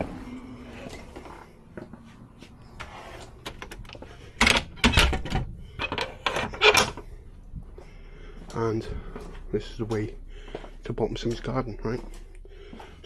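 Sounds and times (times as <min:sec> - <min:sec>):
door clicks and knocks: 0:03.5 - 0:07.0.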